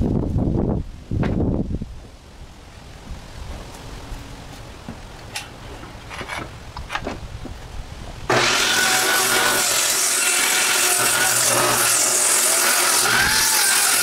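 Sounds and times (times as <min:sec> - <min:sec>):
circular saw cutting wood: 0:08.3 - 0:14.0.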